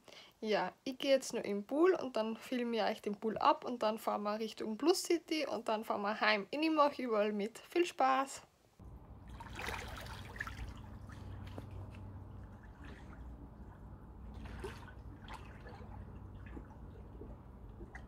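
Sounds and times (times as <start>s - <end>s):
pool water splashing: 8.8s - 18.0s
steady low hum: 8.8s - 18.0s.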